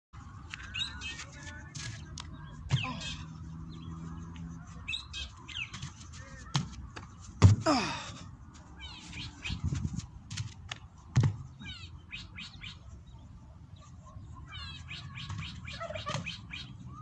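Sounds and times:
birds chirping: 0:00.2 - 0:09.9, 0:10.6 - 0:17.0
feet thumping on hard dirt: 0:01.1 - 0:03.3, 0:05.6 - 0:08.2.

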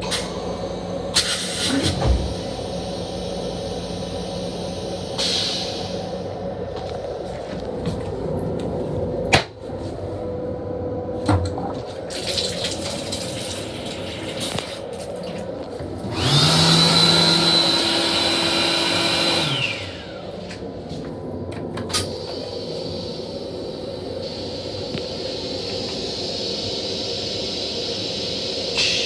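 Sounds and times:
toilet flush with motor whine: 0:11.2 - 0:20.6
water rinsing toilet bowl: 0:12.0 - 0:15.6.

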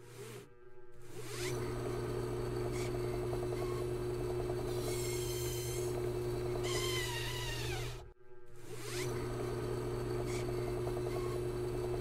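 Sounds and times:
toy drill hum and rattle: 0:01.2 - 0:08.0, 0:08.8 - 0:12.0.

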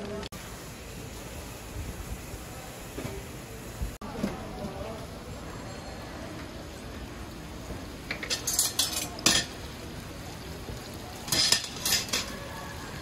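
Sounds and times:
food deep-frying in oil: 0:00.0 - 0:13.0
metal tongs clacking on bowl: 0:08.1 - 0:09.6, 0:11.3 - 0:12.4.

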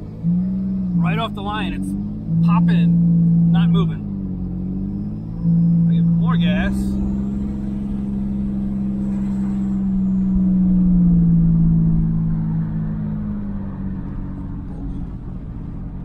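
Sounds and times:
road rumble: 0:00.0 - 0:16.0
truck engine pulling: 0:00.0 - 0:16.0.

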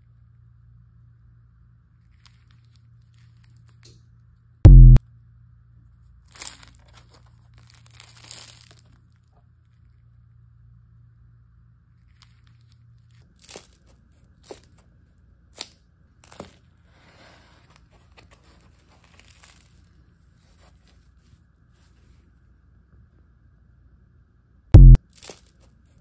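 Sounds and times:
pizza crust crunching: 0:06.2 - 0:09.9, 0:12.1 - 0:16.8, 0:17.6 - 0:21.3, 0:25.0 - 0:26.0.

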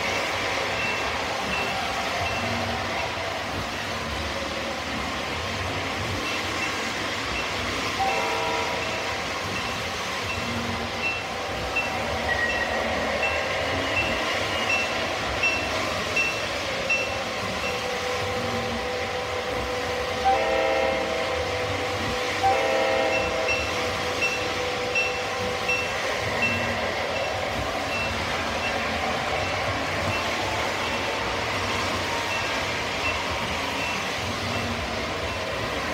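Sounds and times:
model train wheels and motors: 0:00.0 - 0:35.9
model locomotive horn blasts: 0:08.0 - 0:09.3, 0:20.2 - 0:21.8, 0:22.4 - 0:24.4.

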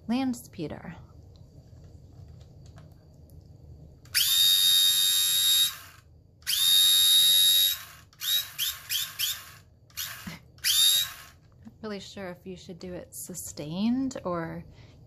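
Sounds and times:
toy laser pistol buzzing whine: 0:04.1 - 0:11.4.

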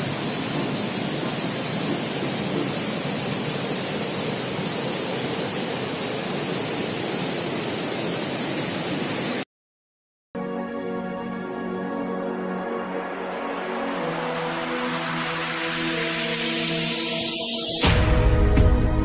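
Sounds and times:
flowing water rushing: 0:00.0 - 0:09.4.

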